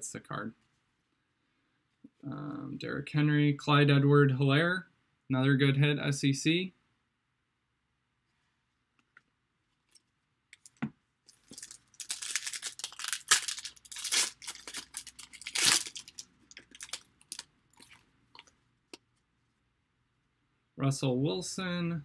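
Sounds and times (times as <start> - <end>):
wrapper tearing and crinkling: 11.3 - 18.0.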